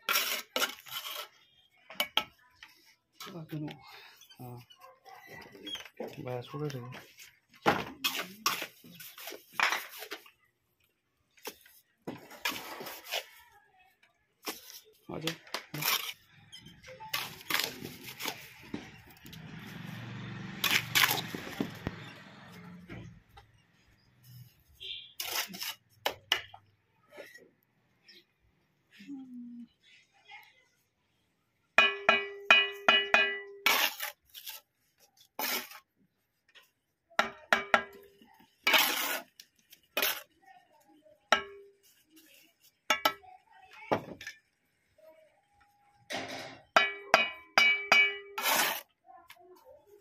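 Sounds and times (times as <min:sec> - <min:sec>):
trowel scraping on mortar and bricks: 0:00.0 - 0:02.4, 0:08.0 - 0:10.4, 0:11.4 - 0:13.4, 0:15.7 - 0:19.8, 0:20.6 - 0:22.0, 0:24.2 - 0:26.6, 0:32.2 - 0:36.0, 0:37.3 - 0:40.4, 0:46.9 - 0:49.0
trowel clinking on brick: 0:31.8 - 0:34.6, 0:46.5 - 0:48.9.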